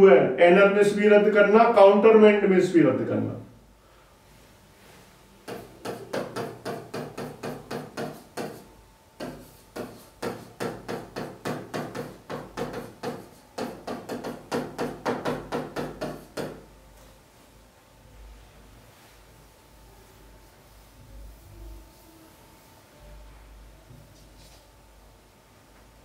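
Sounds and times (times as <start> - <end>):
pen tapping on screen: 5.5 - 16.6.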